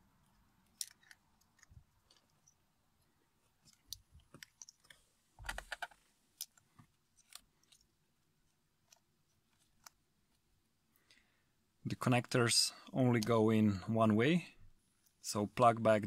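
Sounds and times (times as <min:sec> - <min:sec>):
plastic connectors clicking: 0:00.6 - 0:02.4.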